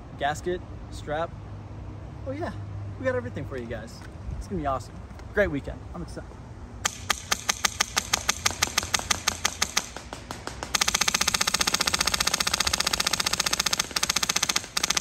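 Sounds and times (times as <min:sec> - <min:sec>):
airsoft rifle firing: 0:06.8 - 0:15.0.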